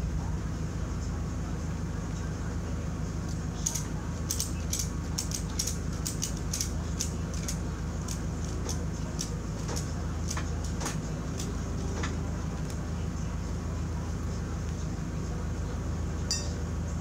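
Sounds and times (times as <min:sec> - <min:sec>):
steady low hum: 0:00.0 - 0:17.0
ratchet strap clicking: 0:03.6 - 0:10.8.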